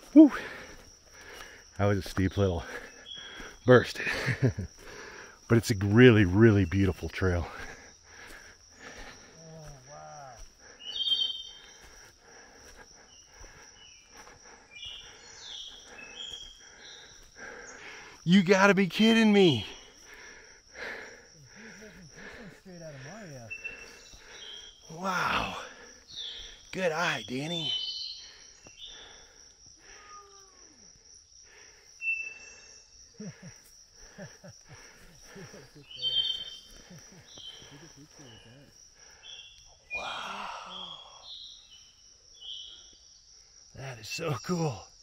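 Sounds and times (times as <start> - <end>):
high insect drone: 0.0 - 45.0
bird chirping: 2.9 - 3.7, 10.8 - 11.9, 14.8 - 18.4, 23.2 - 24.9, 26.0 - 29.2, 32.0 - 33.0, 35.3 - 38.6, 39.2 - 40.0, 40.8 - 43.0
high chirp: 10.9 - 11.7.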